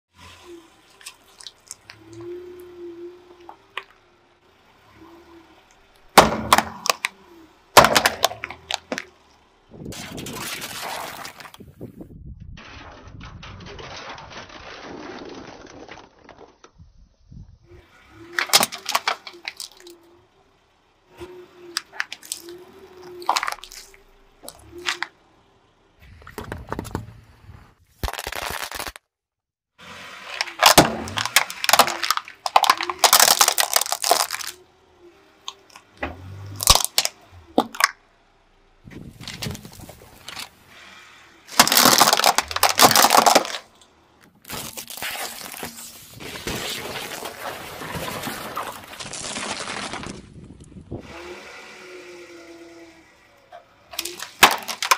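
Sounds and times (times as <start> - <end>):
tyre crushing objects: 6.1 - 7.1, 7.8 - 9.1, 30.3 - 34.6, 41.5 - 50.5, 54.0 - 54.9
plastic tubs cracking: 6.1 - 7.2, 7.8 - 11.7, 12.6 - 16.8, 18.3 - 20.0, 21.7 - 25.2, 28.0 - 29.0, 30.3 - 34.6, 35.4 - 38.0, 41.5 - 50.7, 53.9 - 54.9.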